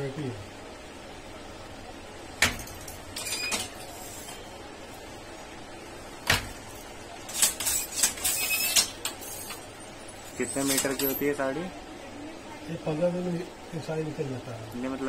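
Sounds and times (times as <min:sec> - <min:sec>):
loom parts rattling and clattering: 0:06.3 - 0:11.4.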